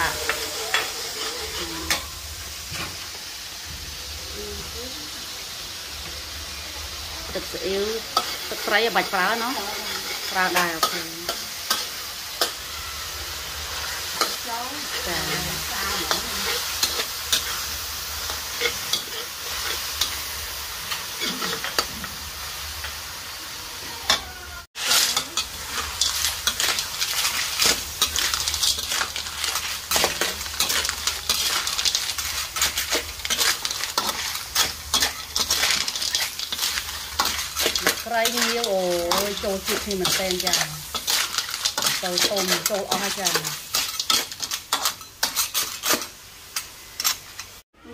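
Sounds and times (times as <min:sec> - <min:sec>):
metal spatula scraping wok: 0:00.0 - 0:03.1, 0:07.1 - 0:23.0, 0:24.0 - 0:47.6
sauce sizzling in a wok: 0:00.0 - 0:47.7
clams rattling against metal: 0:25.9 - 0:46.0.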